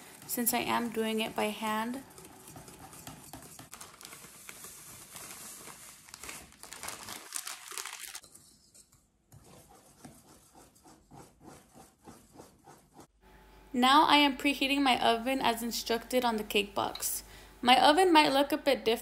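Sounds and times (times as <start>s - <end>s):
whisk stirring in metal bowl: 0.0s - 6.5s, 8.2s - 13.1s
plastic bag crinkling: 3.6s - 8.2s.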